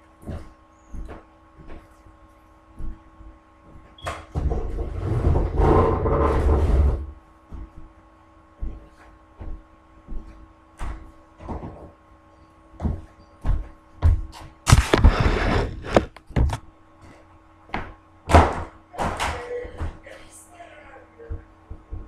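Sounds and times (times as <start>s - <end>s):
faint steady hum: 0.0s - 22.0s
scuffing noise: 0.1s - 4.8s, 8.6s - 11.9s, 12.8s - 17.3s
footsteps on wooden floor: 0.2s - 2.0s, 2.7s - 8.0s, 8.6s - 12.0s, 12.8s - 17.2s.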